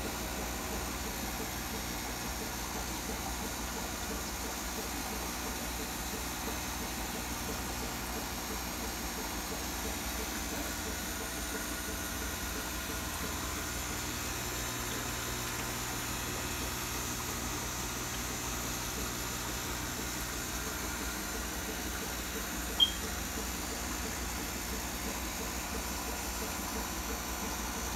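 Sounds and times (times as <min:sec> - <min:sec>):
aquarium air pump humming: 0:00.0 - 0:27.9
short sharp high chirp: 0:22.8 - 0:23.1.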